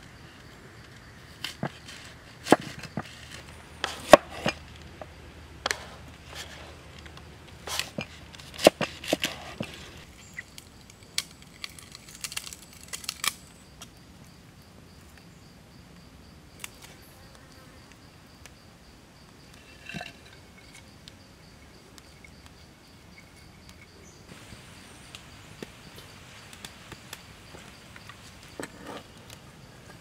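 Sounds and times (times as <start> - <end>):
high insect buzz: 16.5 - 19.7.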